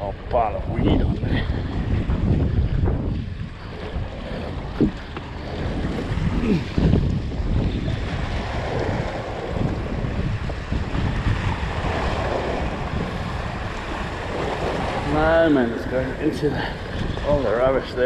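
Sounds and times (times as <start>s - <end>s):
wind buffeting microphone: 0.0s - 18.0s
waves splashing against rocks: 1.1s - 18.0s
sharp thumps: 4.7s - 5.3s.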